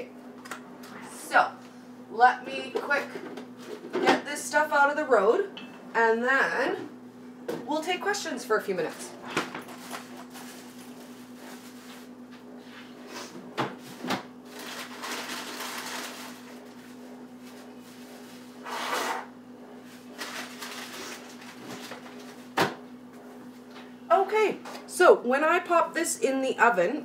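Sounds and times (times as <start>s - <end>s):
steady low hum: 0.0s - 27.0s
rustling and shuffling: 9.2s - 18.6s, 19.8s - 23.9s.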